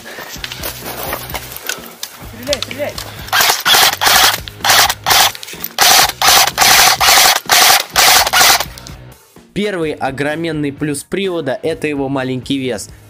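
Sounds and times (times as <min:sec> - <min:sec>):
airsoft gun firing bursts: 0:03.3 - 0:08.8.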